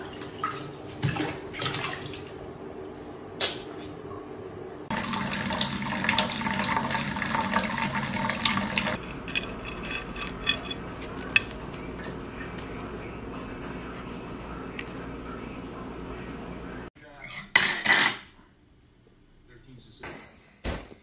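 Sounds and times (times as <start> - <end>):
tap water running into sink: 4.9 - 9.0.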